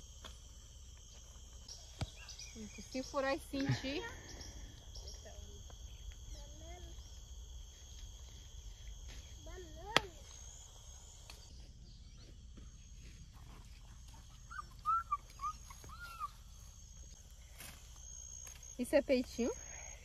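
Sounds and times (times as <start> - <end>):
insects droning: 0.0 - 20.0
animal whistled calls: 14.4 - 16.4.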